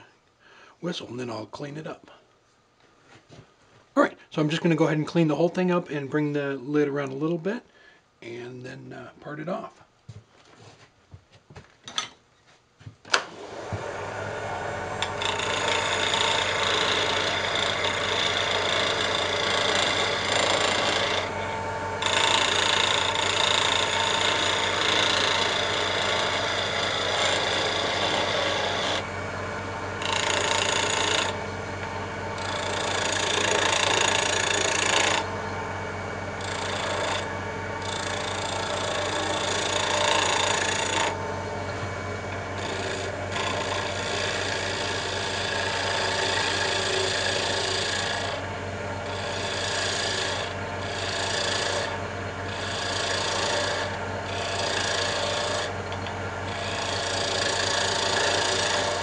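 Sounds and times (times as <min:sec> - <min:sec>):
lathe motor hum: 0:13.1 - 0:59.0
chisel scraping wood: 0:15.0 - 0:21.4, 0:22.0 - 0:29.1, 0:30.0 - 0:31.5, 0:32.4 - 0:35.3, 0:36.4 - 0:41.2, 0:42.6 - 0:48.4, 0:49.0 - 0:59.0.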